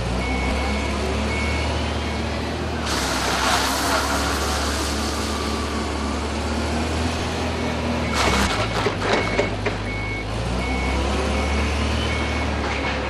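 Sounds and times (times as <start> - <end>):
forklift engine running: 0.0 - 13.0
reversing alarm beeping: 0.1 - 2.3, 7.5 - 13.0.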